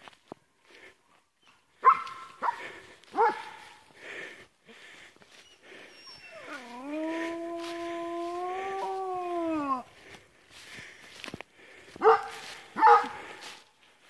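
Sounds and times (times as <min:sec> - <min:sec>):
dog barking: 0:01.8 - 0:03.8, 0:12.0 - 0:13.4
dog howling: 0:06.2 - 0:09.9.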